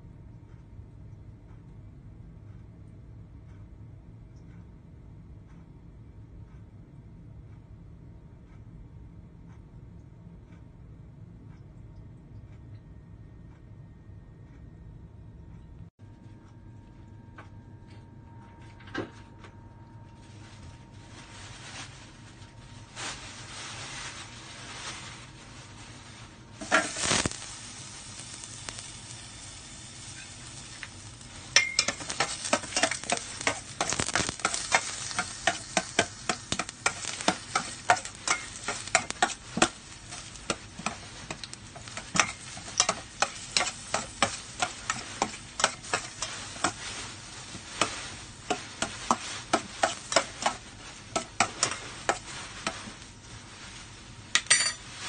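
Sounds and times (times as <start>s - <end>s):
garlic sizzling in hot oil: 23.1s - 55.0s
utensil scraping a pot: 30.0s - 53.1s.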